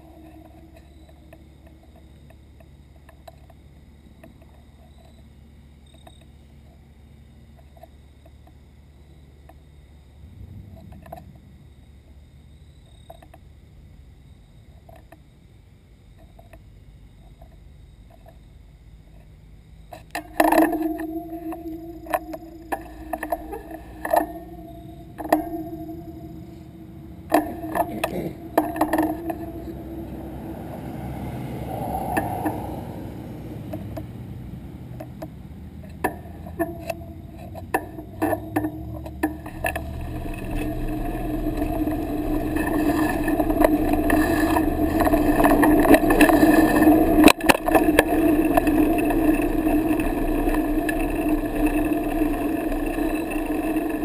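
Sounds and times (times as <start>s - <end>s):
bicycle rattling: 0.0s - 2.5s, 20.1s - 54.0s
tyre and wind noise: 20.0s - 54.0s.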